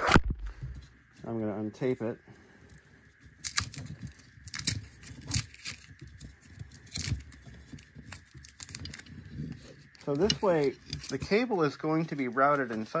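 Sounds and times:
tape ripping off cable: 0:03.3 - 0:11.2.

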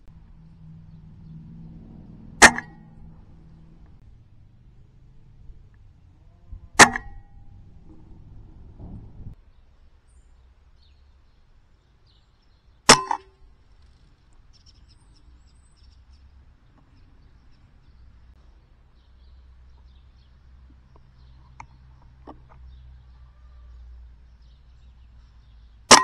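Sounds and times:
pellet hitting target: 0:02.4 - 0:02.9, 0:06.8 - 0:08.0, 0:12.9 - 0:13.3.

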